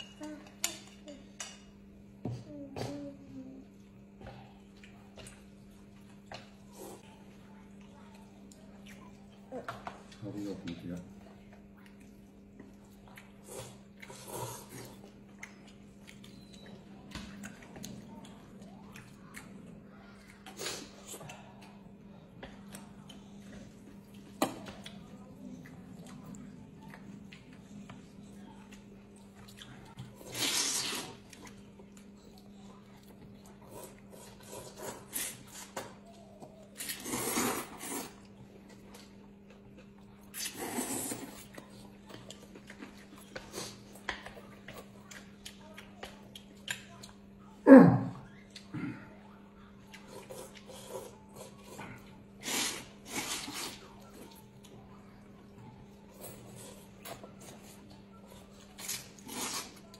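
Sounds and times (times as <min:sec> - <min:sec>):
slurping and chewing: 0:11.8 - 0:47.3, 0:49.8 - 0:55.0, 0:55.8 - 0:59.9.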